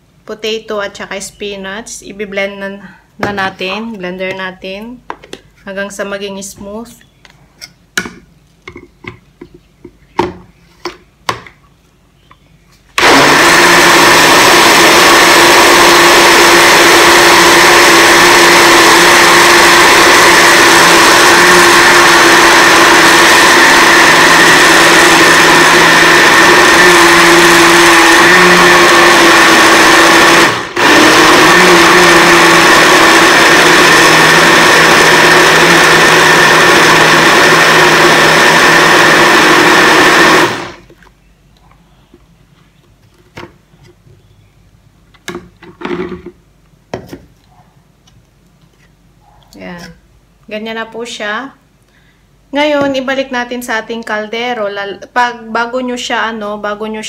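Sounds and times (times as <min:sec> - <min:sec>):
blender motor running: 0:13.0 - 0:40.9.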